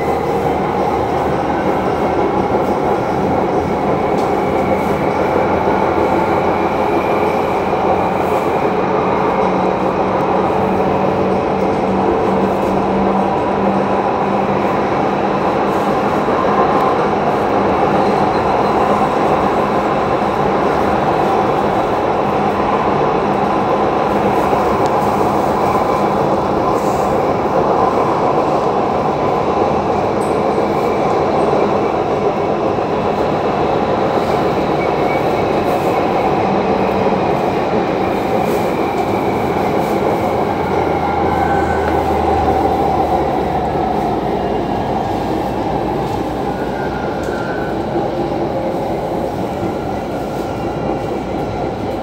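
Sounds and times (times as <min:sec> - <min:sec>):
train rumble and hiss: 0:00.0 - 0:52.0.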